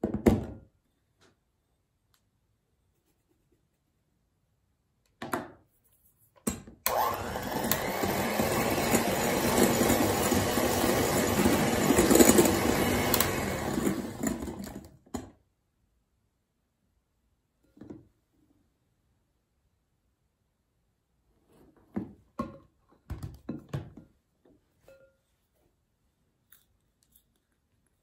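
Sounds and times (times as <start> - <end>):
electric hand mixer whipping: 6.9 - 14.9.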